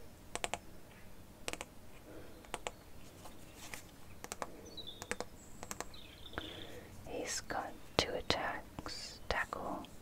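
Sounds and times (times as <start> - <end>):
bird chirp: 2.2 - 3.0, 4.0 - 9.5
trading cards tapping and clicking: 4.2 - 6.0.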